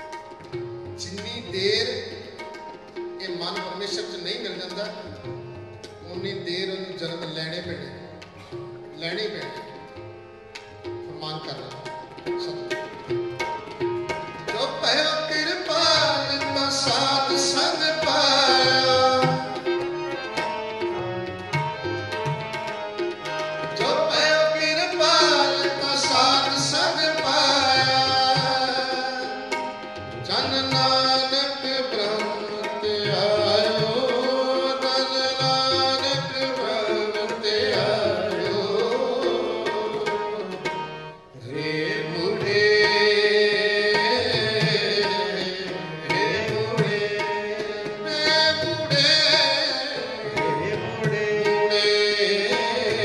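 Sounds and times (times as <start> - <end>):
harmonium chords: 0.0 - 53.0
tabla drumming: 0.0 - 53.0
person singing: 41.5 - 53.0.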